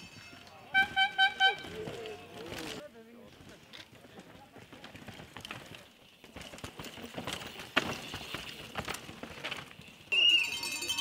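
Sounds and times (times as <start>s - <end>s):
mountain bike clattering over rocks: 0.0s - 11.0s.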